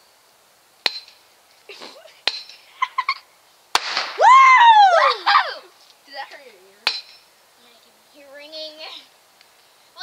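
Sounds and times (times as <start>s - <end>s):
cap bang: 3.8s - 4.2s
loud yell falling in pitch: 4.2s - 5.7s.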